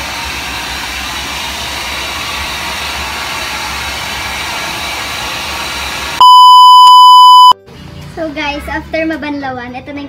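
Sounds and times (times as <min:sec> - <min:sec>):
hair dryer blowing: 0:00.0 - 0:06.2.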